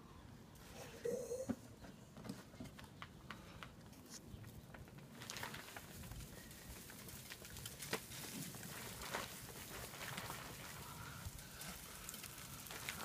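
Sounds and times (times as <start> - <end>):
tissue paper rustling and tearing: 5.1 - 10.9.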